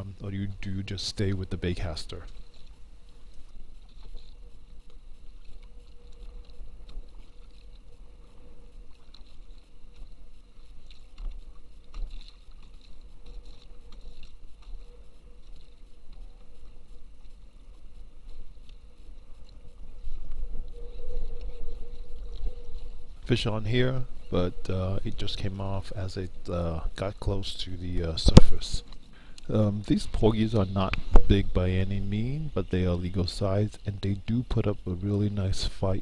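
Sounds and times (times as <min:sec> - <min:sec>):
waves lapping against hull: 0:00.0 - 0:36.0
wind buffeting microphone: 0:29.6 - 0:33.6.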